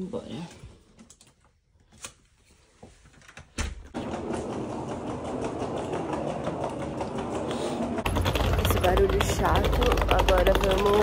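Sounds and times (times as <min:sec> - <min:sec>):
suitcase wheels rattling on floor: 0:03.9 - 0:11.0.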